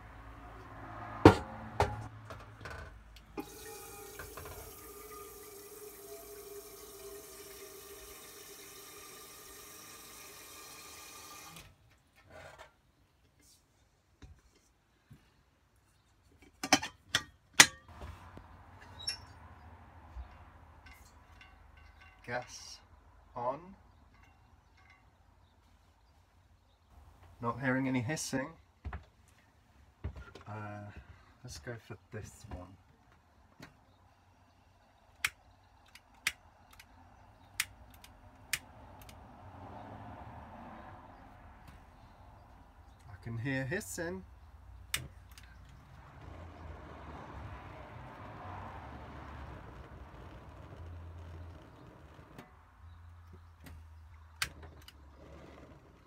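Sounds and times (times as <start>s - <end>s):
metal kettle clanking: 3.4s - 8.4s
ringing metal clink: 20.2s - 22.3s.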